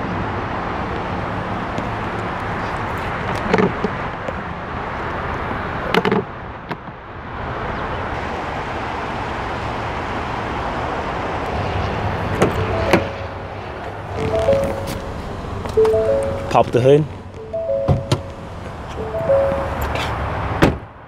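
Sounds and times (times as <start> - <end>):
outdoor background noise: 0.0 - 21.0
fuel filler door click: 17.6 - 18.4
car door handle clicks: 17.8 - 18.4.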